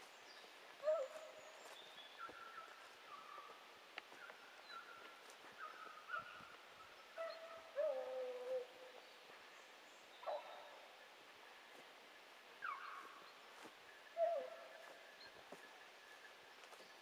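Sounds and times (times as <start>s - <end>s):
faint hounds baying: 0.8s - 9.0s, 10.2s - 11.0s, 12.6s - 15.6s.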